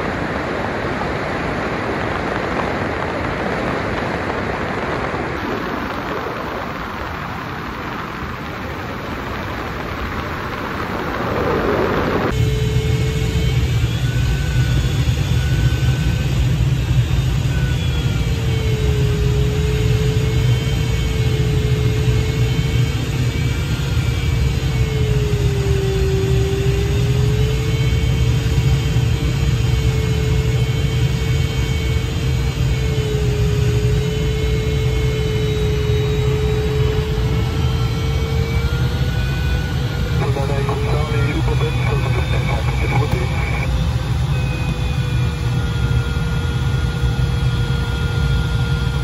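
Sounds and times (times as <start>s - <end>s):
wind noise rumble: 0.0s - 14.6s
airflow rushing in glider cockpit: 0.0s - 49.0s.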